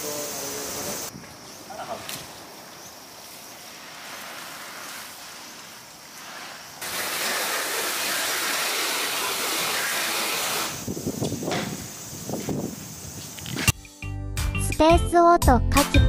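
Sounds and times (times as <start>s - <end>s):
water spraying from a hose: 0.0s - 1.1s, 2.0s - 13.6s.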